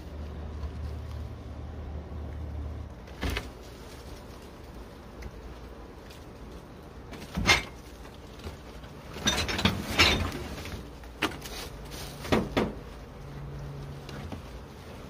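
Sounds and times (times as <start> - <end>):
wood knocking: 12.2 - 12.8.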